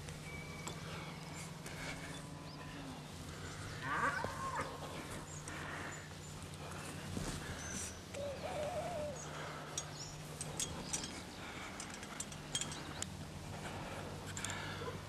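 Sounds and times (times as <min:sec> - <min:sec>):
small birds chirping: 0:00.0 - 0:15.0
steady low hum: 0:00.0 - 0:15.0
wavering bird call: 0:07.6 - 0:09.6.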